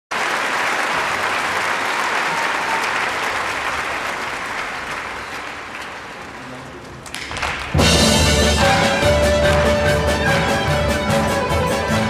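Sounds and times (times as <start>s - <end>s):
audience applauding: 0.1s - 10.8s.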